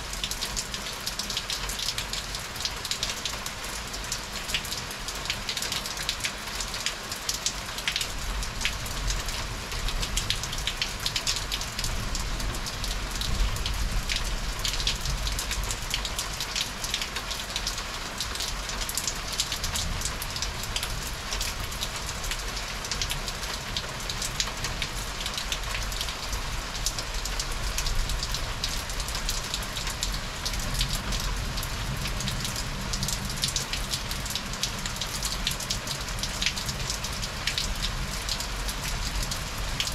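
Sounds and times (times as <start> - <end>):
heavy rain on hard surfaces: 0.0 - 39.9.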